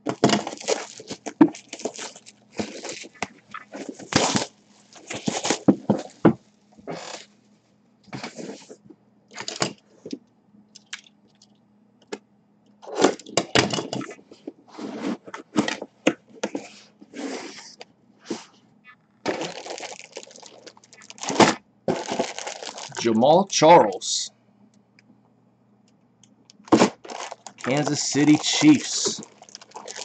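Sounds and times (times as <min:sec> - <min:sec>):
plastic bag crackling: 0:00.2 - 0:06.2, 0:19.3 - 0:23.0, 0:26.7 - 0:30.0.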